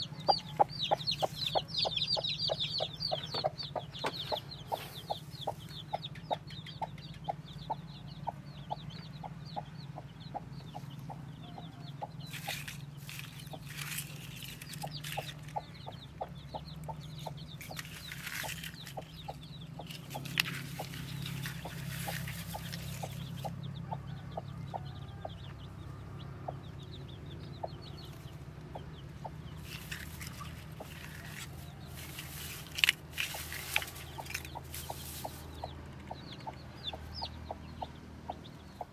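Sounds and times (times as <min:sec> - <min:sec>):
hen clucking: 0:00.0 - 0:38.9
eggshells being handled: 0:12.3 - 0:15.6, 0:29.6 - 0:35.5
rustling of dry straw: 0:12.3 - 0:15.6, 0:17.2 - 0:23.6, 0:29.6 - 0:35.7.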